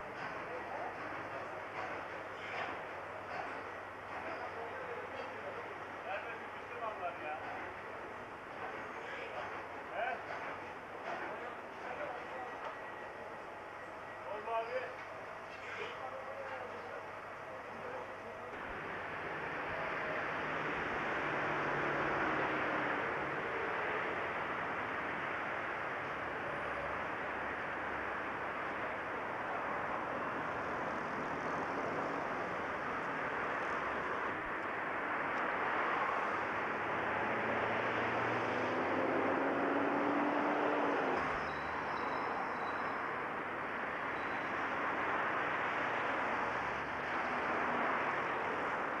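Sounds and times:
passing vehicles: 18.5s - 49.0s.

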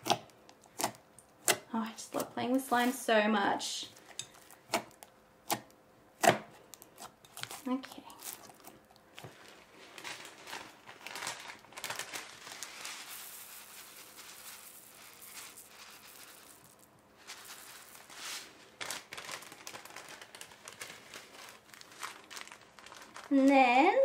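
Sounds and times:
plastic bag crinkling: 1.8s - 5.1s, 6.6s - 24.0s
foam beads falling onto slime: 6.6s - 24.0s.

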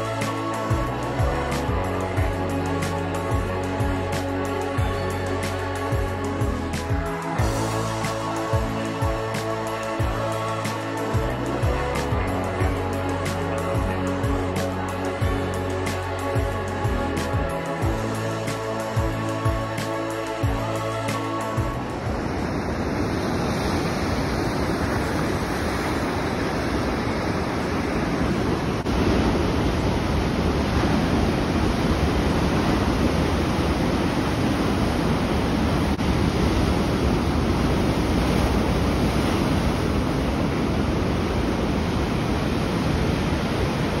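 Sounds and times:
ocean surf breaking: 19.7s - 44.0s.

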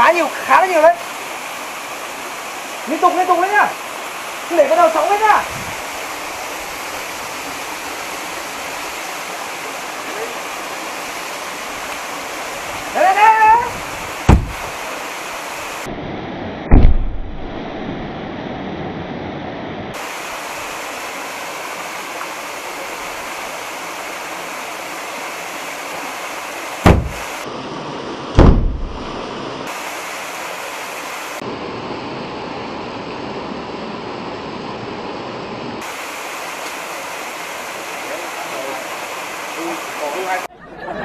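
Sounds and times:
small waterfall rushing: 0.0s - 15.9s, 19.9s - 40.5s
firecracker booms: 14.3s - 14.7s, 16.7s - 17.3s, 26.8s - 27.2s, 28.4s - 29.1s.

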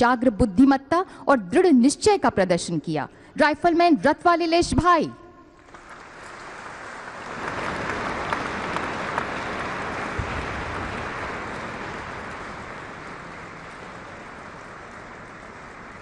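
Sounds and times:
audience clapping: 5.6s - 16.0s.

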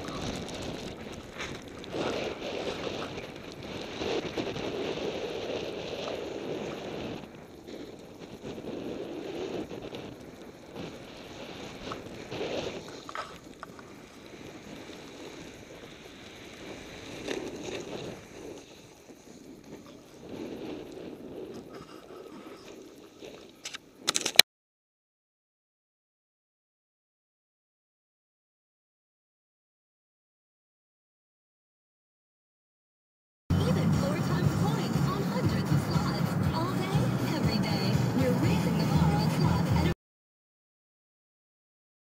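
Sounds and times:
snowboard hissing through snow: 0.0s - 23.5s
wind buffeting microphone: 0.0s - 24.0s.

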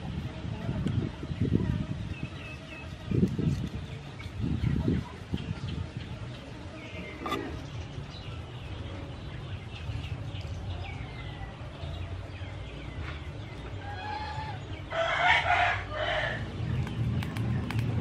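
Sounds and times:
rooster crowing: 14.9s - 16.4s.

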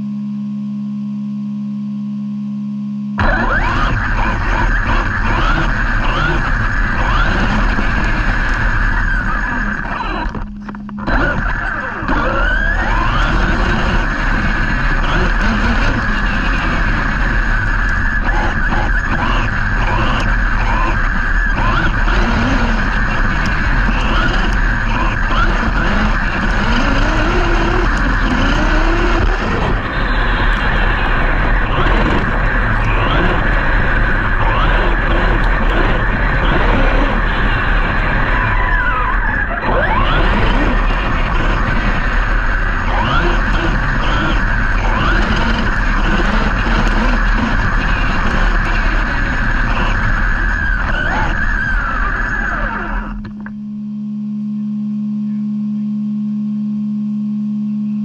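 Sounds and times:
electric motor whine: 0.0s - 58.0s
tyres churning ground: 3.2s - 53.4s.

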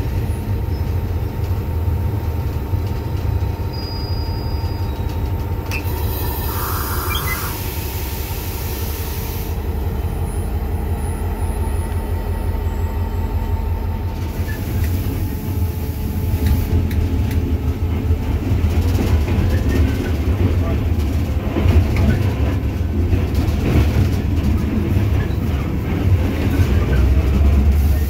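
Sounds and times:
diesel locomotive rumbling: 0.0s - 28.0s
hiss: 6.0s - 9.6s, 14.4s - 16.8s.

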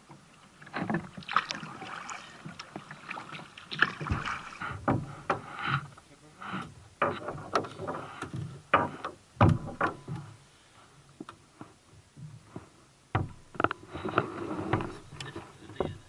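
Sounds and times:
waves slapping kayak hull: 0.1s - 5.6s
knocks on kayak hull: 8.7s - 10.3s, 13.1s - 13.7s.

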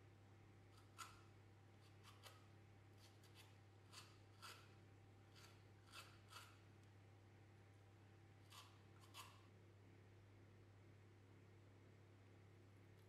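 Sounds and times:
zester scraping orange peel: 1.8s - 6.6s, 8.4s - 9.4s.

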